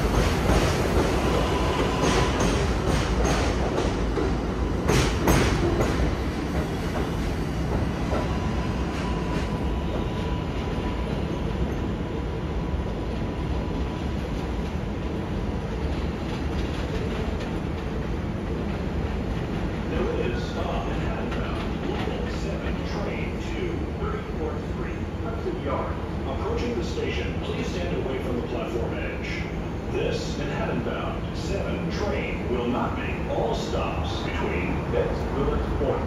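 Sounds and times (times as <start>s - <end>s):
train wheels clacking over rail joints: 0.0s - 10.2s
train rumble: 0.0s - 36.0s.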